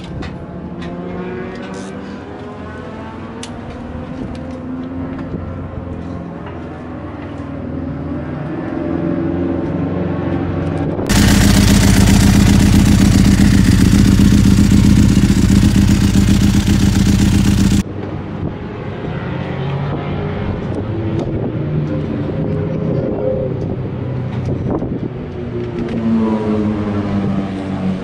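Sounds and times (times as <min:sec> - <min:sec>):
motorcycle engine idling: 0:11.1 - 0:17.8.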